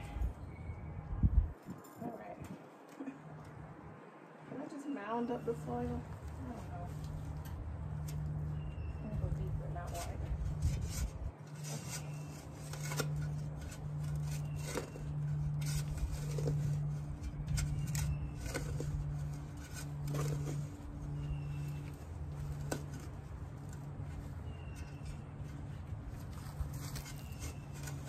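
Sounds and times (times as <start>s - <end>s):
shovel digging into soil: 9.4s - 28.0s.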